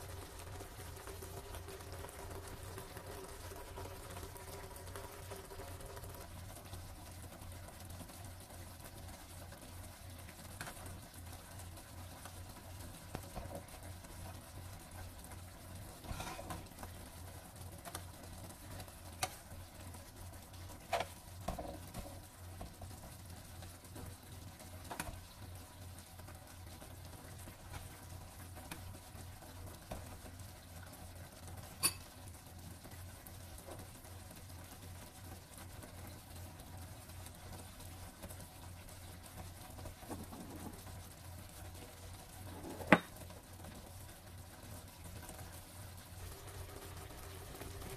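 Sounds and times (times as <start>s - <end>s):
sauce simmering in a frying pan: 0.0s - 47.9s
metal spoon clinking against pan: 31.8s - 32.0s.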